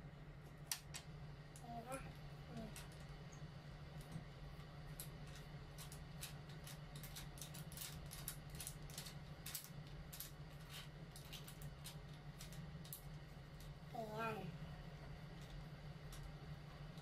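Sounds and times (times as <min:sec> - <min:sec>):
small plastic and metal parts clicking: 0:05.0 - 0:13.1.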